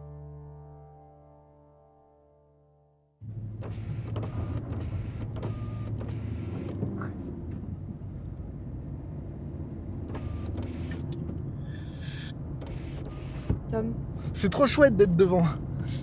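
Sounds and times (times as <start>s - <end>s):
car engine and road noise: 3.2s - 16.0s.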